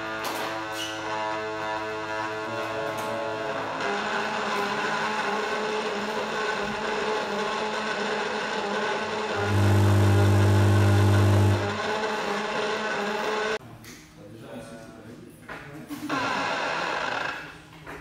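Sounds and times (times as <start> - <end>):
electronic drone: 3.4 - 13.6
loud low bass tone: 9.4 - 11.6.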